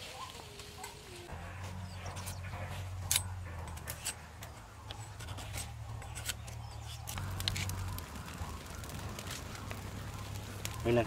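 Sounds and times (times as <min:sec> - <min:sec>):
small fire crackling: 0:00.0 - 0:11.0
blade scraping wooden stick: 0:04.9 - 0:07.7.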